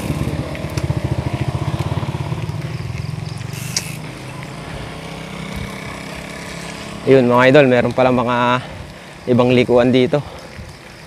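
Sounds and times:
engine running with fast pulse: 0:00.0 - 0:06.8
sharp click: 0:03.3 - 0:04.0.

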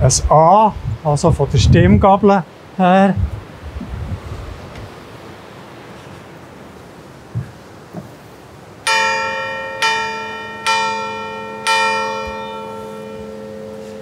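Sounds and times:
church bell struck with hammer: 0:08.9 - 0:14.0.

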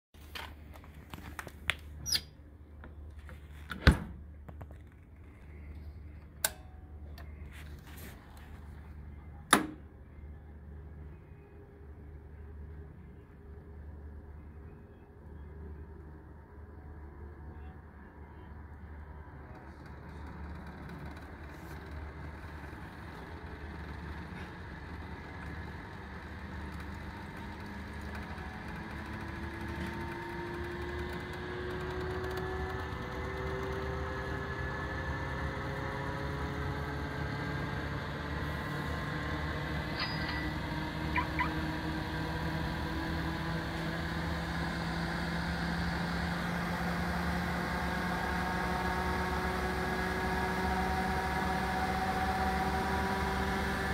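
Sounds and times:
clicks: 0:04.5 - 0:08.5
centrifuge whine: 0:04.5 - 0:53.9.

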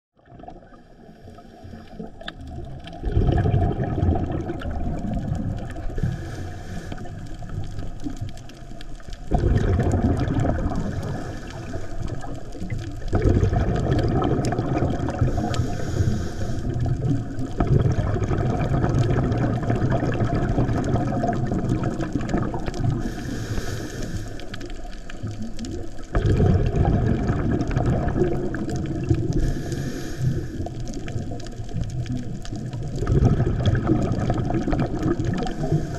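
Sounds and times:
exhaled bubbles underwater: 0:00.2 - 0:35.9
high hiss of inhalation: 0:06.0 - 0:07.1, 0:15.4 - 0:16.7, 0:23.0 - 0:24.5, 0:29.4 - 0:30.7.

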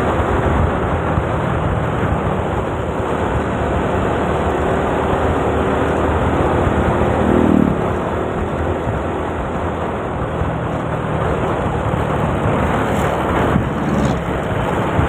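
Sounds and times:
road noise: 0:00.0 - 0:15.0
scooter engine running: 0:00.0 - 0:15.0
wind rush: 0:00.0 - 0:15.0
brief rising tone: 0:06.7 - 0:07.9.

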